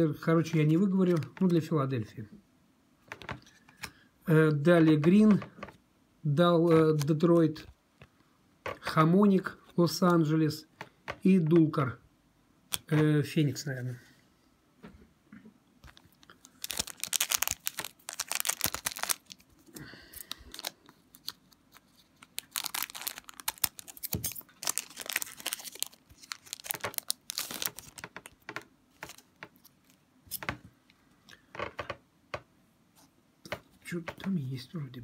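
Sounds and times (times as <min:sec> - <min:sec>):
foil wrapper crinkling: 0:15.8 - 0:30.0.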